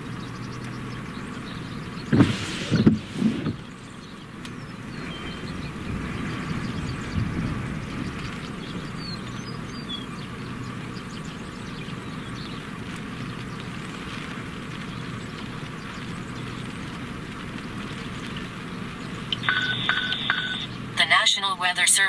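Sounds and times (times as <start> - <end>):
engine idling hum: 0.0 - 22.0
steady hiss: 12.6 - 21.1.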